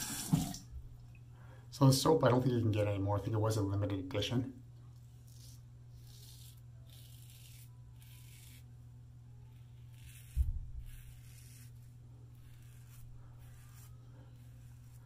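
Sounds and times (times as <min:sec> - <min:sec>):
razor scraping stubble: 0:04.9 - 0:15.0.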